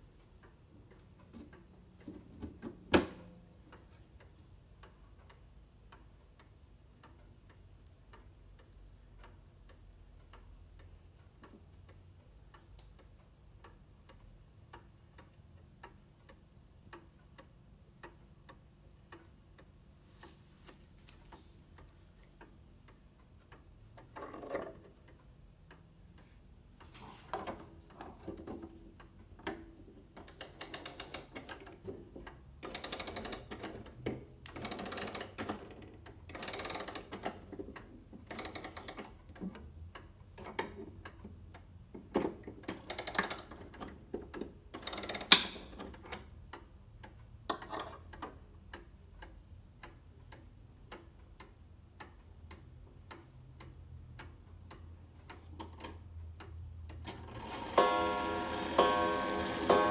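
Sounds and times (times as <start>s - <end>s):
wall clock ticking: 0.0s - 59.9s
rapid ratchet clicking of winding: 32.2s - 37.4s, 38.2s - 39.2s, 42.6s - 43.9s, 44.7s - 45.9s, 57.0s - 59.9s.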